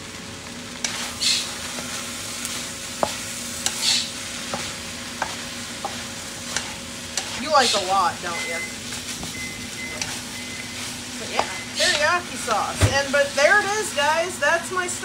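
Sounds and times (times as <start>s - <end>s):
frying sizzle: 0.0s - 15.0s
spatula scraping wok: 0.8s - 14.4s
spatula knocking against pan: 4.5s - 6.0s.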